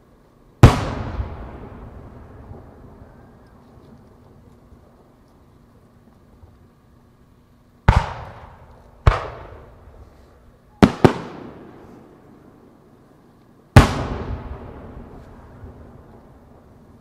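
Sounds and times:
firework shells booming: 0:00.6 - 0:04.4, 0:07.8 - 0:10.0, 0:10.7 - 0:12.4, 0:13.8 - 0:17.0
rolling echo: 0:00.6 - 0:06.5, 0:07.8 - 0:17.0.

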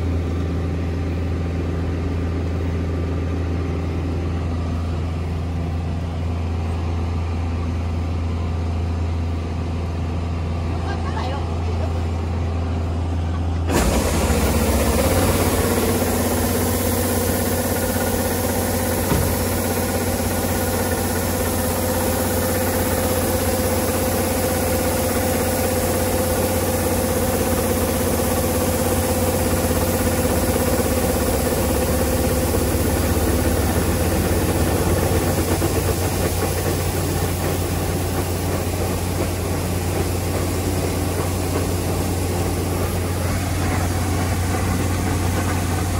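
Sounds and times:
diesel engine droning: 0:00.0 - 0:45.9
auger whine: 0:12.2 - 0:45.9.

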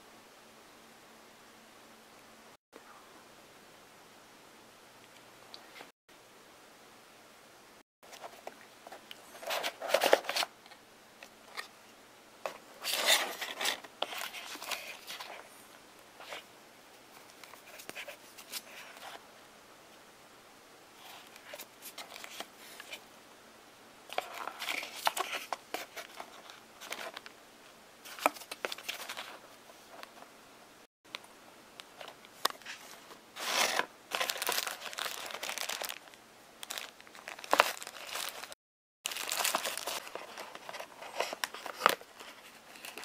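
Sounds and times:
cardboard and paper rustling: 0:08.1 - 0:10.5, 0:12.5 - 0:15.6, 0:24.1 - 0:27.2, 0:28.0 - 0:30.3, 0:32.0 - 0:43.0.

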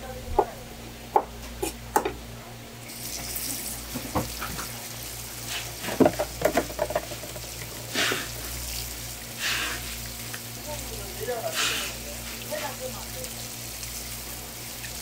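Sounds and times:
knocks on a cutting board: 0:01.1 - 0:02.2, 0:03.9 - 0:04.6, 0:05.9 - 0:07.4
water spraying from a hose: 0:04.4 - 0:06.0, 0:07.2 - 0:15.0.

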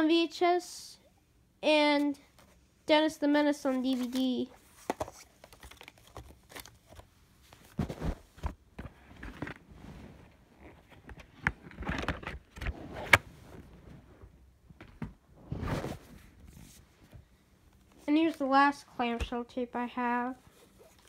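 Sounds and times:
plastic cases handled: 0:03.9 - 0:09.7, 0:10.6 - 0:14.0.

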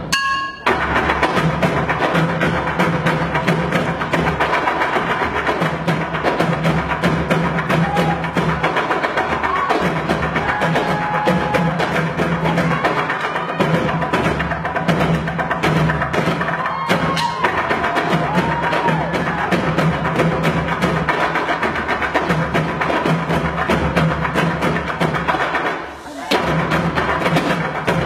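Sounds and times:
fast ensemble drumming: 0:00.0 - 0:28.0.

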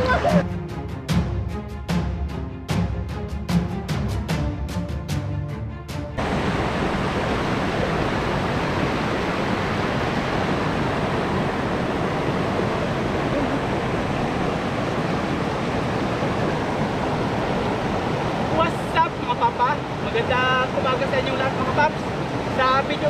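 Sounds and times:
river water rushing over rocks: 0:06.2 - 0:23.0.

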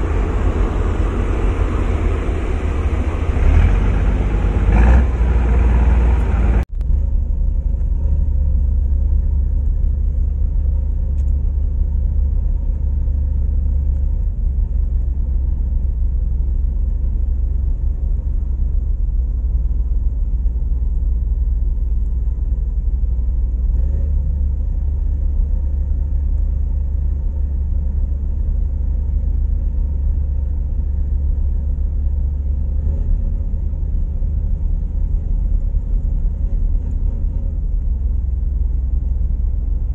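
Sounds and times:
ferry engine rumble: 0:00.0 - 0:39.9.

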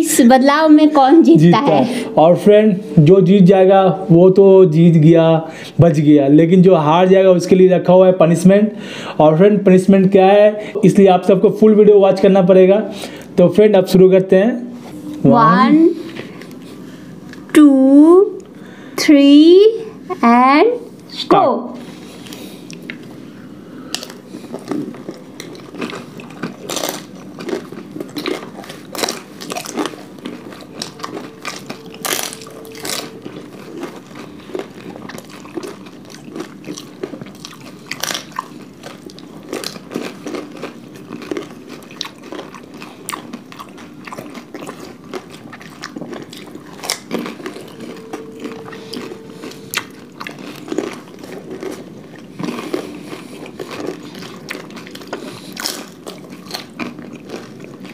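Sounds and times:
chewing and wet mouth sounds: 0:21.8 - 0:57.9
crisp shells crunching: 0:23.9 - 0:48.0.

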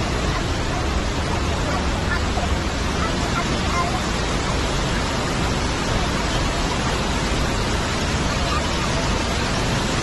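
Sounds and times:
waterfall rushing: 0:00.0 - 0:10.0.

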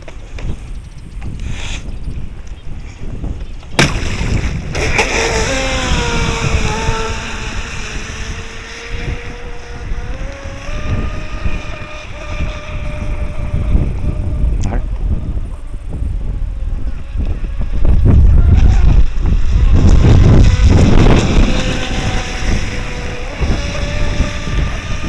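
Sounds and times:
wind rumbling on microphone: 0:00.0 - 0:25.0
electric motor whining: 0:04.4 - 0:25.0.

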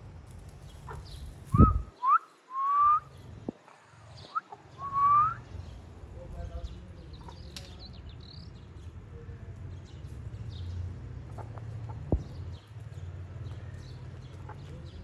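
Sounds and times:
steady low rumble: 0:00.0 - 0:02.0
small birds chirping: 0:00.0 - 0:15.0.

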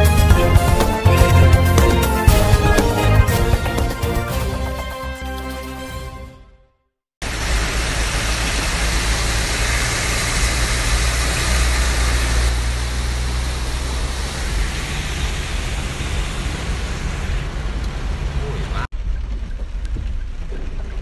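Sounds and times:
car engine humming: 0:00.0 - 0:04.7, 0:07.2 - 0:19.4
heavy rain on a car roof: 0:07.2 - 0:21.0.

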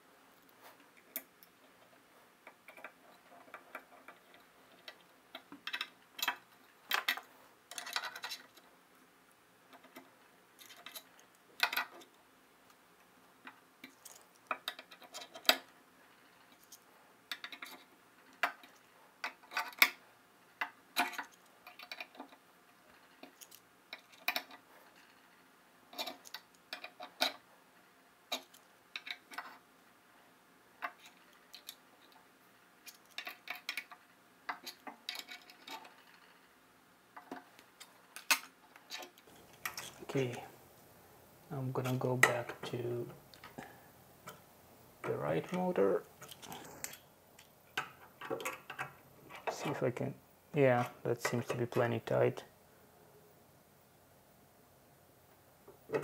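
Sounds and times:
small metal hardware clicks: 0:02.4 - 0:08.6, 0:20.6 - 0:22.4, 0:23.0 - 0:25.1, 0:28.3 - 0:29.6, 0:32.8 - 0:36.4.

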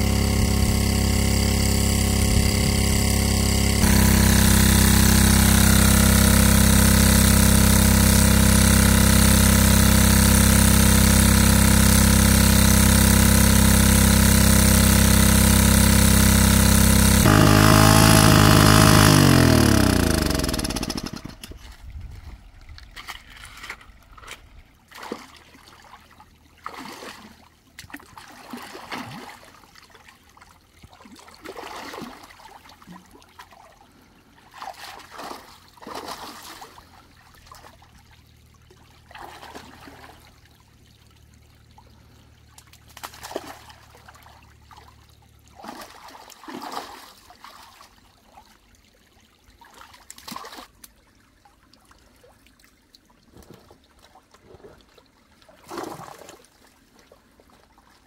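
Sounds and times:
faint low engine hum: 0:00.0 - 0:22.9, 0:33.7 - 0:47.1
water splashing and sloshing: 0:21.1 - 0:58.0.

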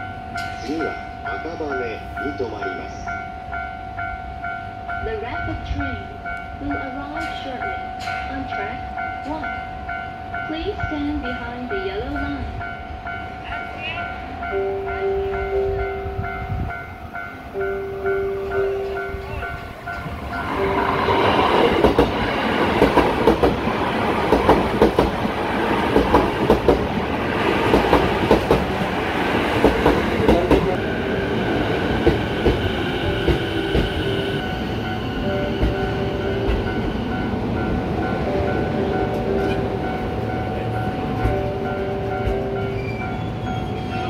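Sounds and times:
level crossing bell ringing: 0:00.0 - 0:21.8
train wheels clattering over rails: 0:19.6 - 0:44.0.

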